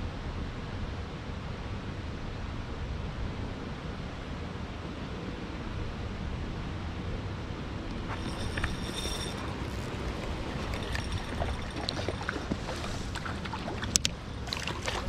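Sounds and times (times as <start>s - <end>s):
flowing water: 8.1s - 15.0s.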